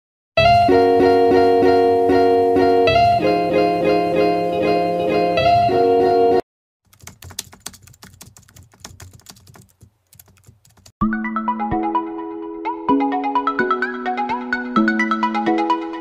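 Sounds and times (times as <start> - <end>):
melodic background music: 0.4 - 6.4, 11.0 - 16.0
music: 0.4 - 6.4, 11.0 - 16.0
keyboard typing clicks: 6.9 - 10.9.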